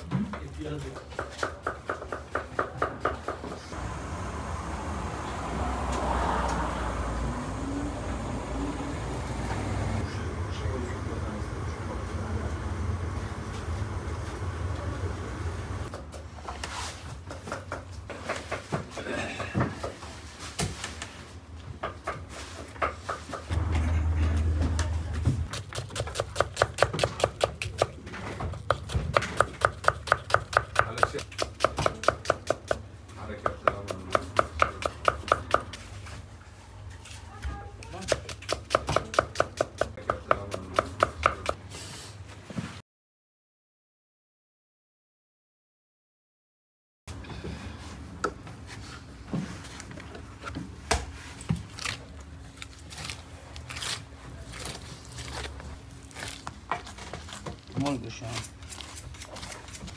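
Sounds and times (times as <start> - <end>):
knife chopping on wooden board: 25.5 - 32.8, 33.4 - 35.8, 38.0 - 41.6.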